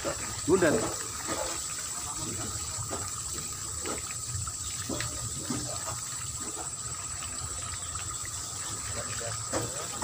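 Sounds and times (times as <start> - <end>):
water trickling: 0.0 - 10.0.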